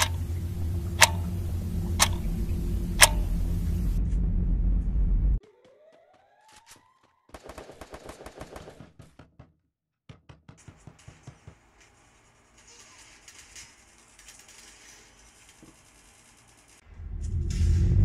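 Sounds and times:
video game gunfire: 0:07.3 - 0:09.0
steady hiss: 0:11.6 - 0:16.9.

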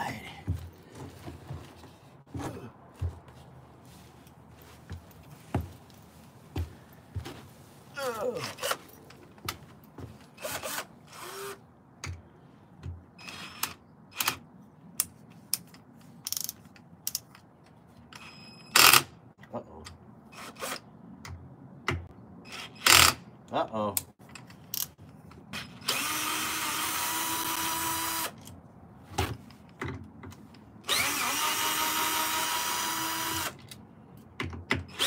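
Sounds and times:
clicks and knocks of handled parts: 0:13.6 - 0:20.0, 0:22.9 - 0:25.8, 0:28.3 - 0:30.7, 0:33.6 - 0:35.0
cordless drill running: 0:25.9 - 0:28.3, 0:30.9 - 0:33.6.

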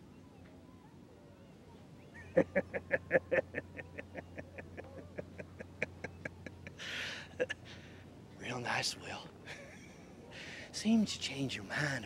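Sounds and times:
man laughing: 0:02.3 - 0:07.6.

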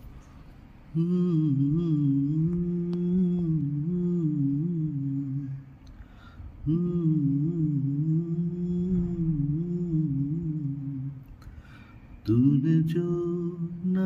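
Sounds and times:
man humming: 0:00.9 - 0:05.8, 0:06.6 - 0:11.4.

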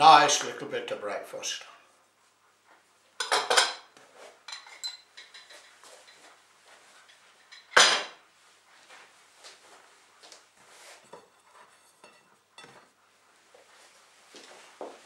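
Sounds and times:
cutlery and crockery clattering: 0:03.2 - 0:03.9, 0:04.5 - 0:06.2, 0:07.4 - 0:08.2.

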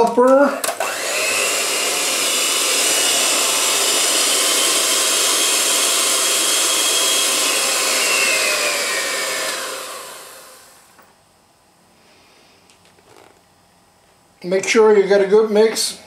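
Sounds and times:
electric hand mixer whine: 0:00.6 - 0:11.0.

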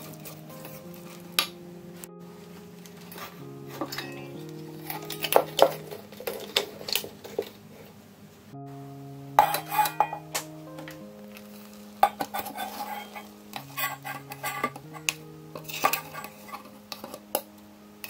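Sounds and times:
spatula scraping dough: 0:12.0 - 0:15.0.

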